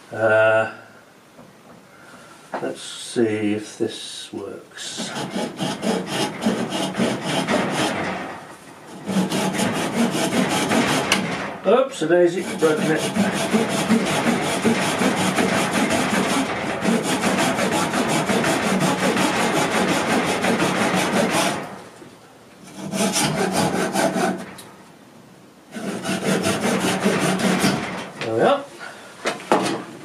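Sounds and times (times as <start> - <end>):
handsaw cutting wood: 4.9 - 11.5, 12.3 - 21.8, 22.6 - 24.5, 25.7 - 28.0.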